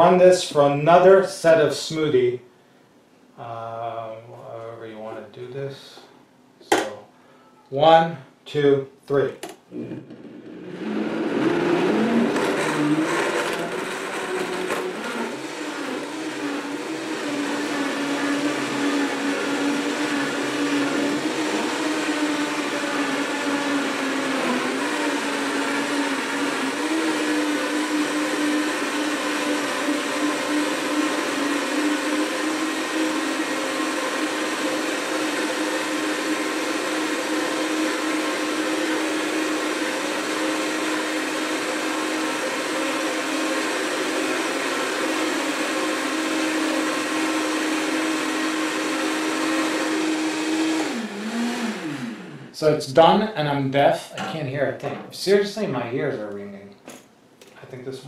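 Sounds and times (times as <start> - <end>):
blenders whirring: 9.7 - 52.6.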